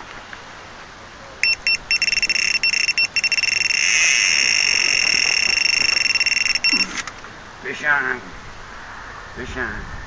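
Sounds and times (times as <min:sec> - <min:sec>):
bite alarm beeping: 0:01.4 - 0:07.2.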